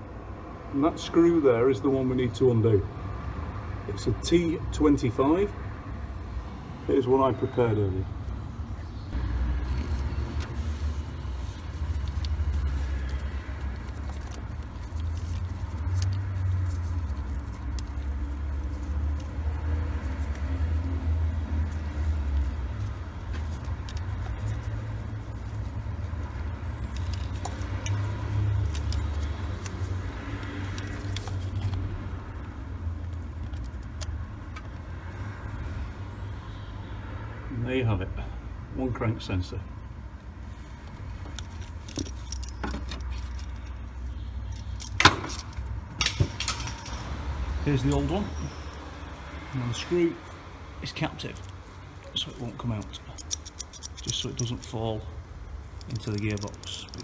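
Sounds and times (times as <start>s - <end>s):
screwdriver clicks and scrapes: 41.2s - 47.1s, 52.2s - 54.8s, 55.7s - 57.0s.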